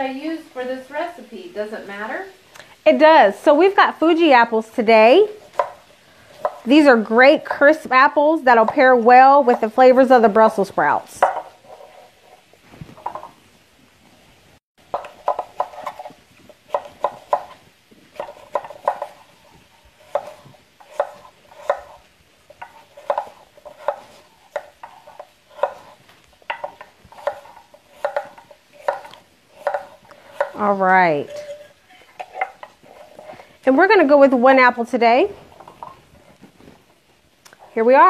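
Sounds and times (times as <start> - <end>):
knife chopping on wooden board: 5.5 - 5.8, 6.4 - 6.7, 11.2 - 12.0, 14.9 - 19.3, 20.0 - 30.6.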